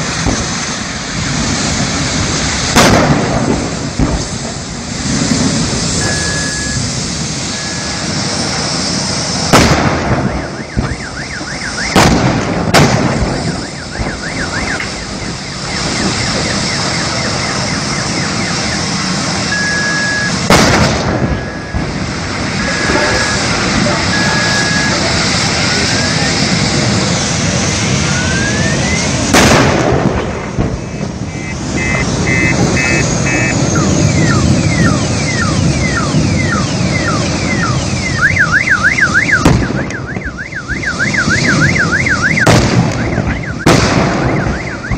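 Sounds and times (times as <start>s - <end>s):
gas cylinders exploding: 0.0s - 38.4s, 39.0s - 44.9s
fire burning: 0.0s - 44.9s
alarm warbling: 6.0s - 8.2s, 10.1s - 12.0s, 13.2s - 20.5s, 21.2s - 25.2s, 27.9s - 29.2s, 30.8s - 44.9s.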